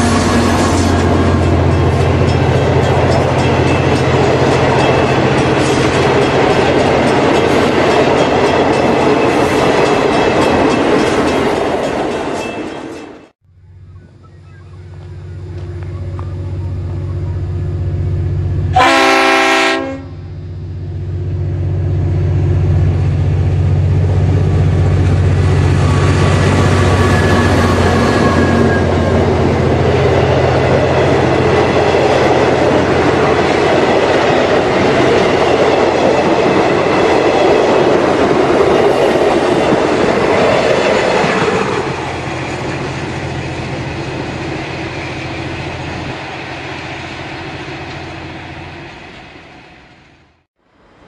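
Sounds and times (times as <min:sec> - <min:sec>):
train wheels clattering on rails: 0:00.0 - 0:13.3, 0:23.8 - 0:49.3
diesel locomotive engine drone: 0:00.0 - 0:51.0.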